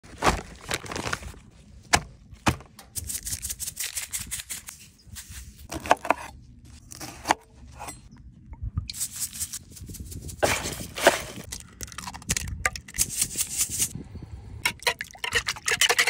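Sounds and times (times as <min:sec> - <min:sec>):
paper crinkling: 0:00.0 - 0:02.0
seasoning shaker rattling: 0:08.9 - 0:11.1.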